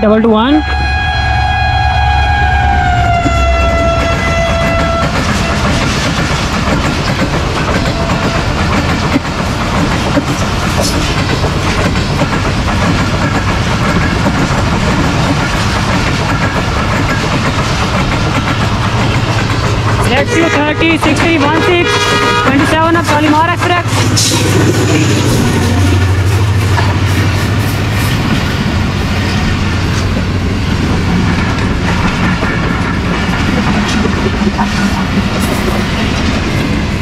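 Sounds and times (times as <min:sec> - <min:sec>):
locomotive horn: 0:00.3 - 0:05.8, 0:20.0 - 0:26.2
train coaches clattering over rail joints: 0:03.0 - 0:37.0.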